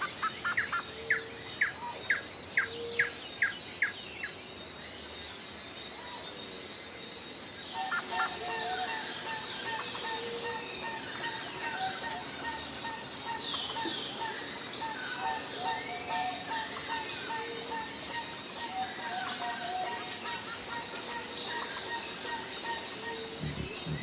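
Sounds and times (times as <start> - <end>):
small birds chirping: 0.0 - 24.0
high insect-like drone: 6.7 - 24.0.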